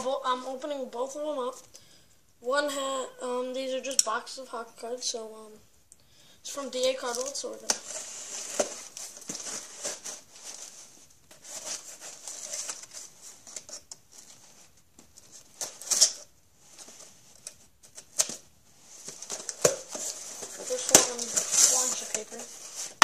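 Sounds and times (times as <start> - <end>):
cardboard rustling and scraping: 6.8 - 23.0.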